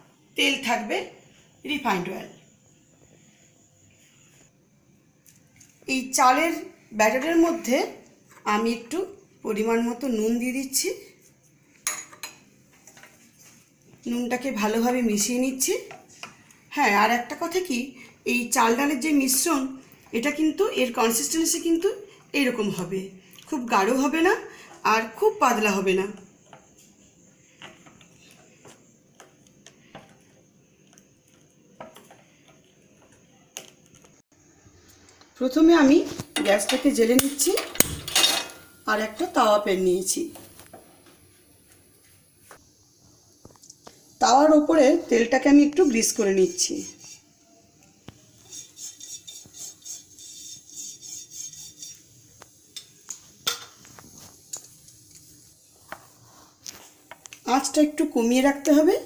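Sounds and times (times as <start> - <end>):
spoon stirring batter in bowl: 26.1 - 33.9, 48.1 - 57.3
utensils clicking against pan: 36.1 - 38.7
pastry brush swishing on pan: 46.5 - 47.3, 48.4 - 52.6, 55.1 - 57.1.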